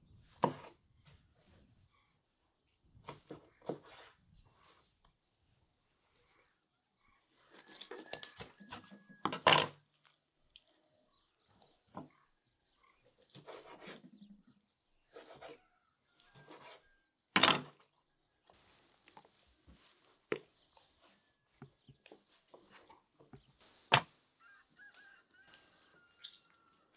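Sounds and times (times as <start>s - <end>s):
knife cutting raw chicken: 3.0s - 4.2s, 7.5s - 9.5s, 13.0s - 14.2s, 15.0s - 17.0s.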